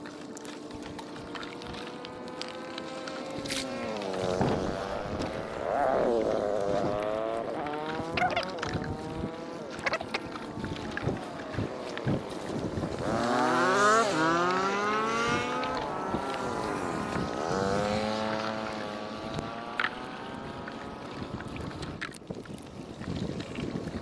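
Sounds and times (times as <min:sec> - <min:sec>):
vehicle engine passing by: 0:12.9 - 0:21.6.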